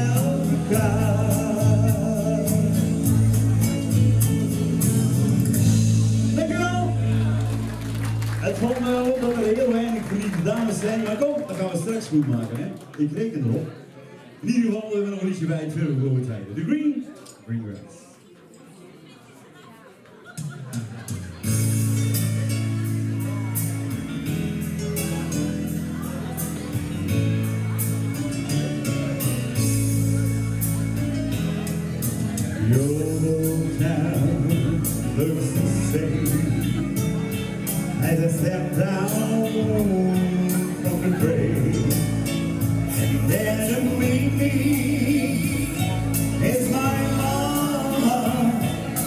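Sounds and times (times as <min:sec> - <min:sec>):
man singing into a microphone: 0:00.0 - 0:07.2, 0:32.0 - 0:49.0
live pop music with drums: 0:00.0 - 0:08.7, 0:20.3 - 0:49.0.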